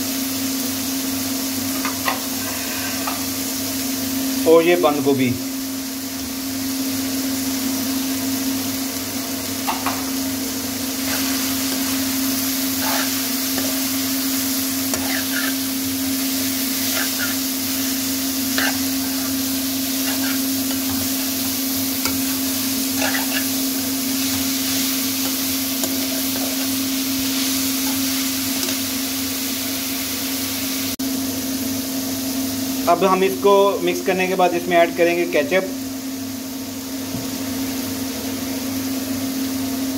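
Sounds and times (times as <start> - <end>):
food sizzling in a wok: 0.0 - 39.9
steady low hum: 9.8 - 30.2
spatula scraping and clinking on pan: 14.9 - 15.7, 18.4 - 21.3, 22.0 - 23.6.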